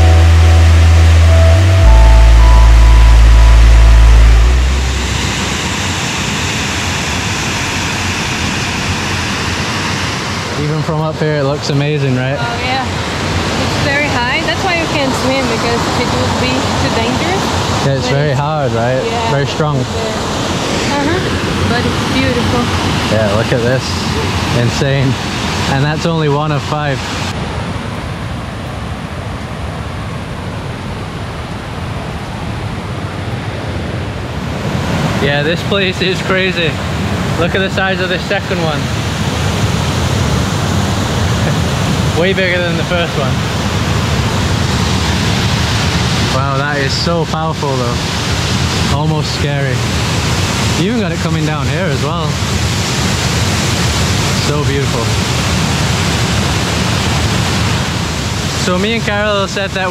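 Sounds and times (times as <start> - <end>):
background music: 0.0 - 5.4
waterfall: 0.0 - 59.9.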